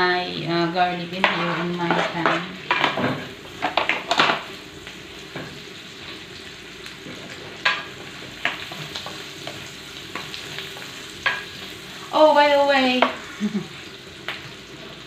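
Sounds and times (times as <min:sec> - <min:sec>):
onions sizzling in a frying pan: 0:00.0 - 0:15.0
spatula scraping a pan: 0:01.1 - 0:04.4.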